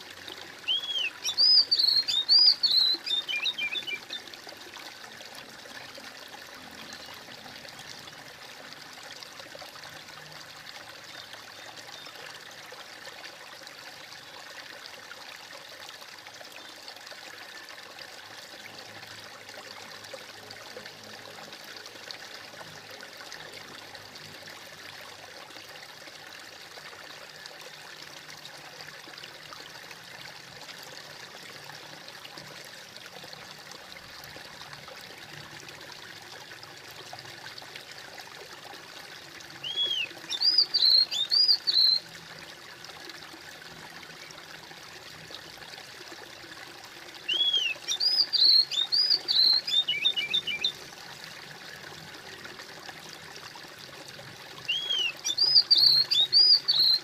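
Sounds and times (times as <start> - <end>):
stream trickling and splashing: 0.0 - 57.0
songbird chirping: 0.6 - 4.3, 39.6 - 42.0, 47.3 - 50.8, 54.7 - 57.0.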